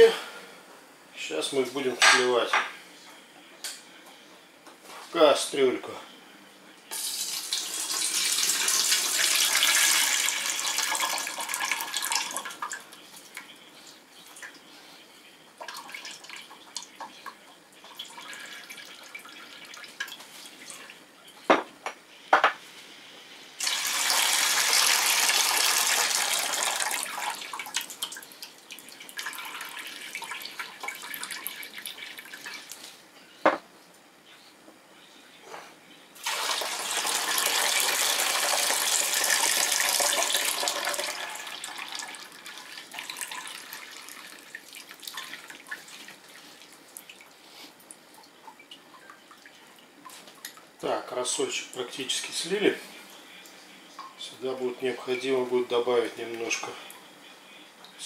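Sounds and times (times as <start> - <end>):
brine gushing into pot: 7.0 - 12.8, 23.6 - 32.7, 36.2 - 46.7
liquid trickling and dripping: 26.7 - 32.9, 41.4 - 50.8.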